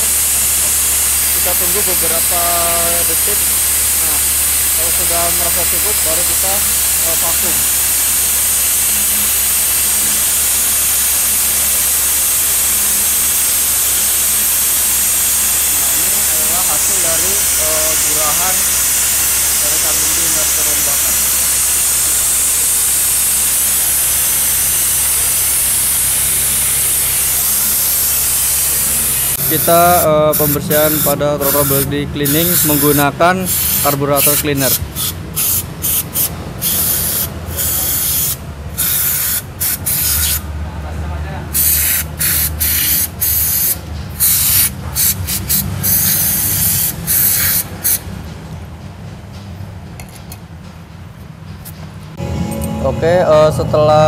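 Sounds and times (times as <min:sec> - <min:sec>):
vacuum extractor running: 0:00.0 - 0:30.7
aerosol spray hissing bursts: 0:00.0 - 0:40.4, 0:41.6 - 0:48.0.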